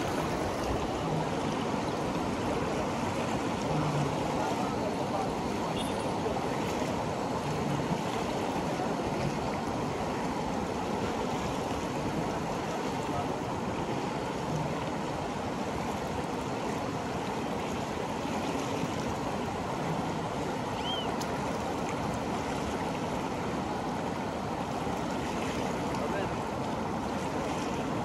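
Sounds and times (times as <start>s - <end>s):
river rushing: 0.0s - 28.0s.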